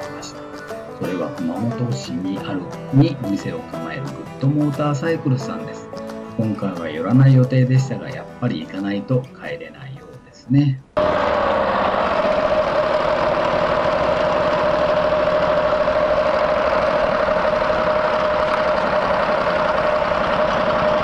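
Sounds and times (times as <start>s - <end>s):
motorcycle engine running: 11.0s - 21.0s
steady whine: 11.0s - 21.0s.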